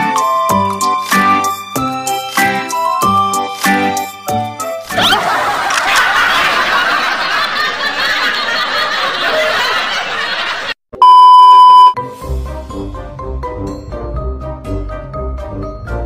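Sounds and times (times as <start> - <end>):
background music: 0.0 - 5.7, 12.0 - 16.0
crowd laughing: 4.9 - 10.8
test tone beep: 11.0 - 12.0.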